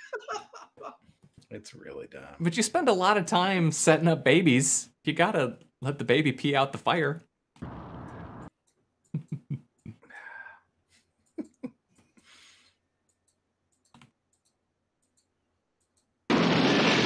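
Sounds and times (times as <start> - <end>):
sharp clicks and taps: 13.0 - 16.2.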